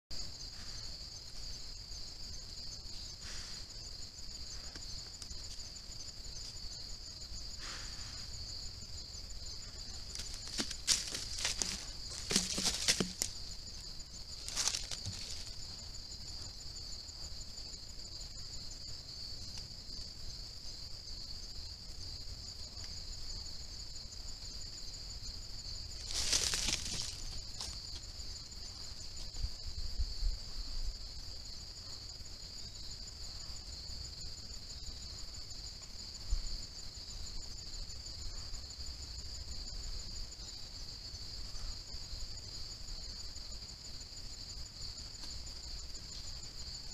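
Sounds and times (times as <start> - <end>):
insect chorus trilling: 0.1 - 46.9
noisy rustles: 26.0 - 27.8.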